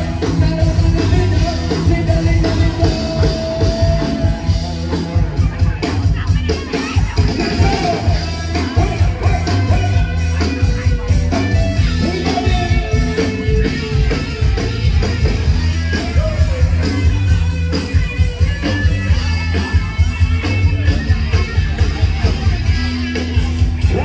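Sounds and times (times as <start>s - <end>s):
person singing: 0.0s - 5.8s, 6.6s - 10.8s, 11.8s - 14.5s
live rock band playing: 0.0s - 24.0s
steady drum beat: 0.0s - 24.0s.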